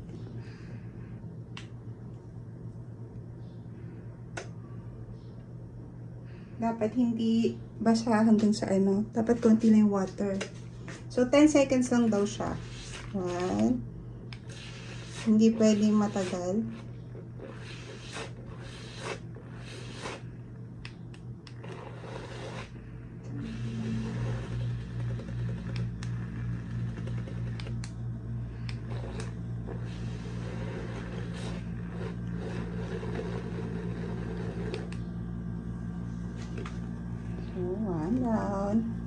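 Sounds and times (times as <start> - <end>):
small motor humming: 12.1 - 20.3, 21.4 - 35.8.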